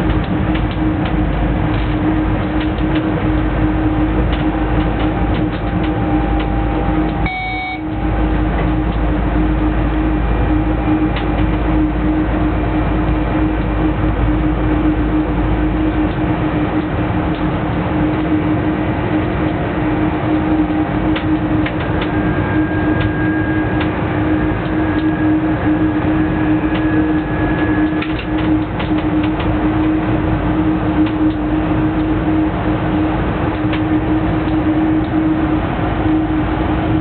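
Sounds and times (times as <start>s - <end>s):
electric hum: 0.0s - 37.0s
locomotive cab running noise: 0.0s - 37.0s
brief high beep: 7.2s - 7.9s.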